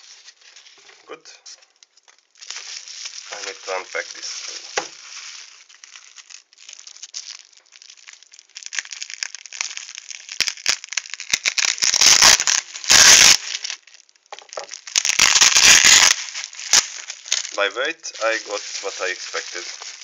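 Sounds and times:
bubble wrap crinkling: 0:00.0 - 0:20.0.

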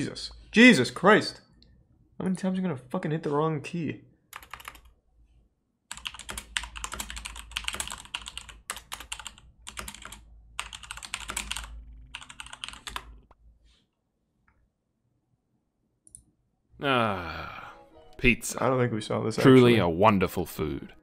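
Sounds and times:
typing on computer keyboard: 0:04.3 - 0:04.9, 0:05.9 - 0:13.3.

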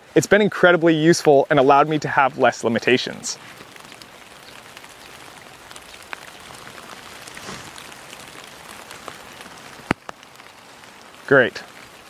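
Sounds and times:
rain hiss: 0:00.0 - 0:12.0
raindrops tapping: 0:00.0 - 0:12.0.

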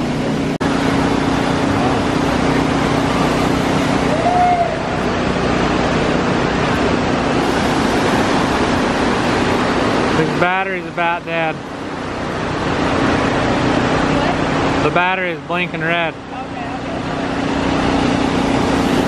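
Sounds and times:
water rushing over rocks: 0:00.0 - 0:16.3
low steady hum: 0:00.0 - 0:19.0.

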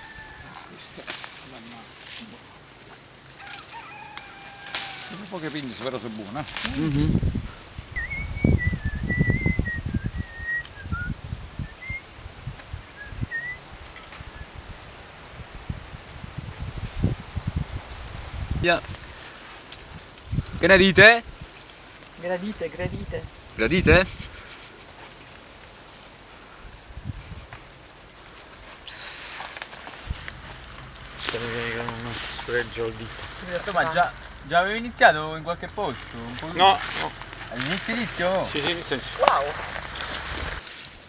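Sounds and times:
faint open-air background noise: 0:00.0 - 0:41.0
high insect chirring: 0:00.0 - 0:41.0
rustling among vines: 0:00.5 - 0:08.3, 0:16.2 - 0:20.6, 0:28.2 - 0:34.5, 0:35.8 - 0:41.0
person whistling a tune: 0:08.0 - 0:12.0, 0:13.0 - 0:13.6.

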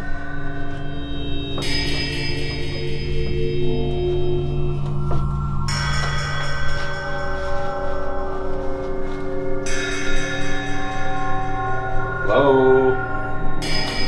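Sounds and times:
bell-like tones: 0:00.0 - 0:14.0
low drone: 0:00.0 - 0:14.0.

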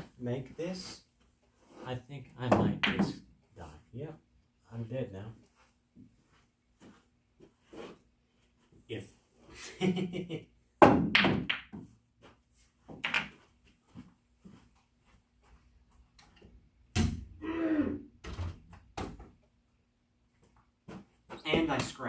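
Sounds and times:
pool balls knocking together: 0:02.4 - 0:03.3, 0:10.8 - 0:11.9, 0:12.9 - 0:13.4
balls dropping into pocket: 0:02.5 - 0:03.3, 0:12.9 - 0:13.5.

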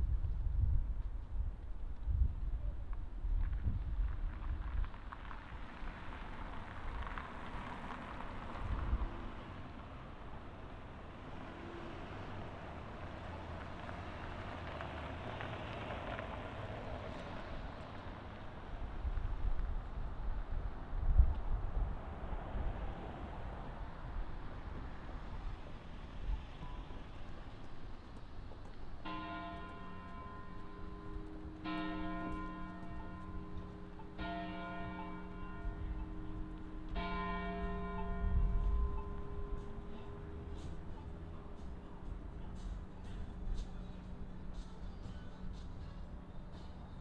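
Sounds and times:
wind on microphone: 0:00.0 - 0:05.0, 0:18.8 - 0:26.8, 0:38.0 - 0:39.5
large tower bell tolling: 0:29.0 - 0:40.5.

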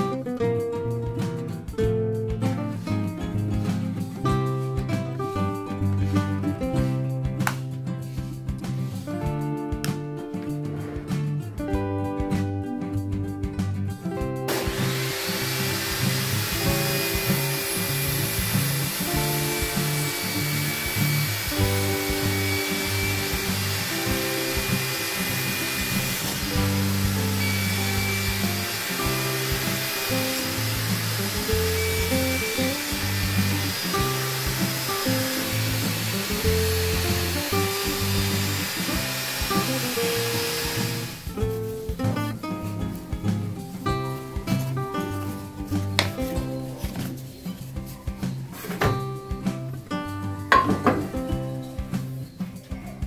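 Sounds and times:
background music: 0:00.0 - 0:53.0
table saw ripping a board: 0:14.5 - 0:41.3.

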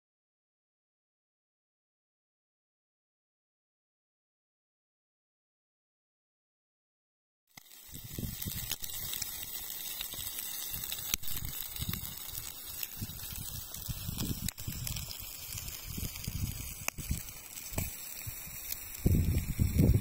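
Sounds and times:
fish sizzling in a frying pan: 0:07.5 - 0:20.0
wind rumbling on microphone: 0:07.9 - 0:09.5, 0:10.2 - 0:20.0.

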